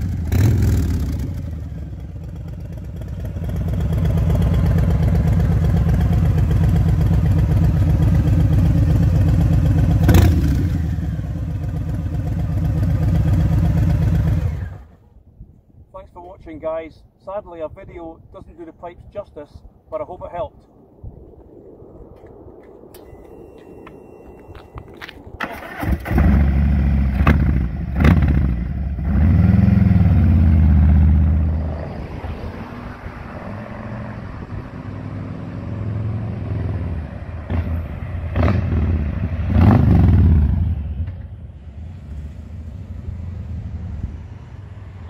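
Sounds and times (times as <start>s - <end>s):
motorcycle engine revving: 0.0s - 15.0s, 25.4s - 31.6s, 35.2s - 41.2s
motorcycle riding by: 0.0s - 15.0s, 25.5s - 41.2s.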